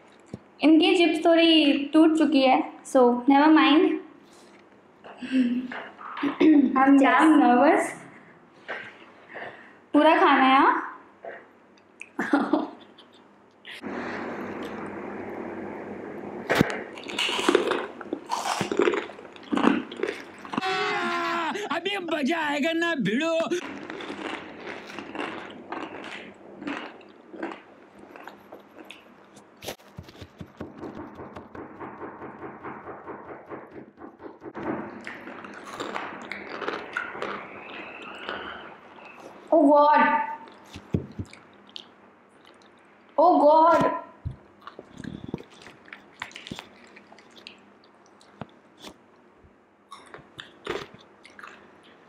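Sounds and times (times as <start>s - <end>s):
chip crunching: 17.0s - 20.6s, 23.6s - 29.1s, 35.1s - 37.5s
crunchy chewing: 17.0s - 20.6s, 23.6s - 31.2s, 35.0s - 39.4s, 44.6s - 49.0s, 49.9s - 52.0s.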